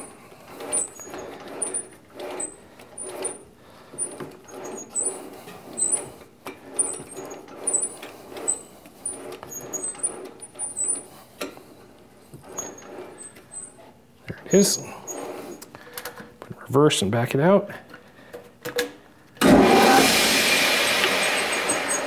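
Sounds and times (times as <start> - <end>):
threading die squeaking: 0.0 - 3.4, 4.0 - 11.1, 12.4 - 13.8
lathe chuck rubbing and clattering: 0.0 - 16.2, 19.4 - 22.0.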